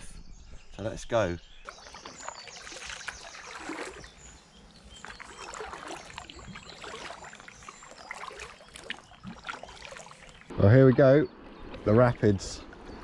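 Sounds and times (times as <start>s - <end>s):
paddle splashing in water: 1.7s - 10.5s.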